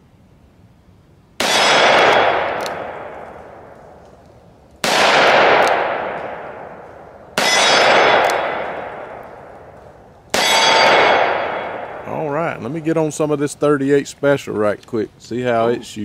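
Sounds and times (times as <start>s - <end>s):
revolver gunshots: 1.4s - 4.0s, 4.8s - 12.5s.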